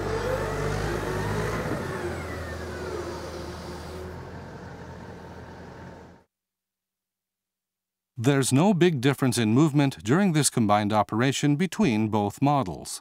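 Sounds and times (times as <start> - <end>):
excavator engine with falling whine: 0.0 - 6.3.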